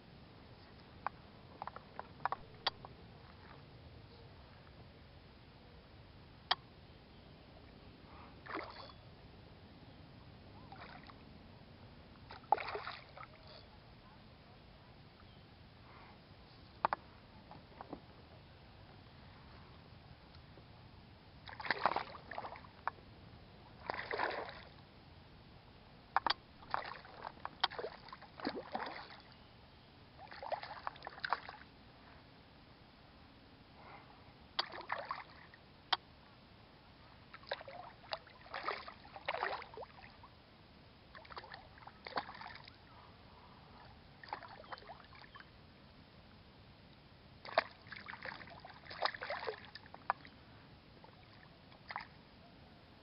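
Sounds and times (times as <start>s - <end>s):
water splashing and sloshing: 8.4s - 8.9s, 10.6s - 11.2s, 12.2s - 13.6s, 21.4s - 23.0s, 23.6s - 24.8s, 26.2s - 29.4s, 30.2s - 31.7s, 34.6s - 35.6s, 37.3s - 40.4s, 41.1s - 42.9s, 43.8s - 45.5s, 47.4s - 50.4s, 51.0s - 52.2s.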